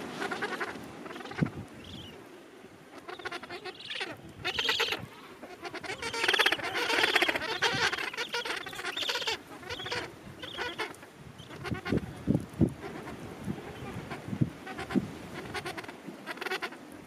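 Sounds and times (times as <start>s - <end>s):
penguins calling: 3.0s - 12.0s.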